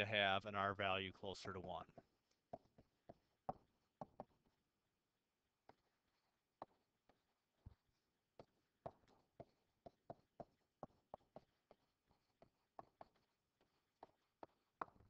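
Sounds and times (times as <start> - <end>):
stylus tapping on tablet: 1.9 - 4.4, 8.4 - 15.0.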